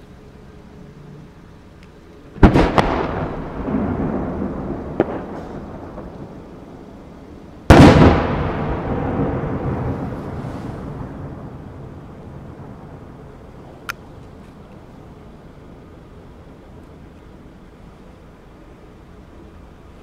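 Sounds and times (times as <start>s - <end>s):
fireworks cracking and banging: 2.3s - 14.7s
rumbling echo: 2.4s - 14.2s.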